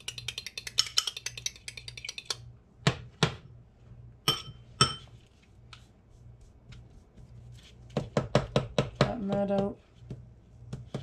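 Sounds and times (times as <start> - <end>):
fork beating egg in glass bowl: 0.0 - 2.5.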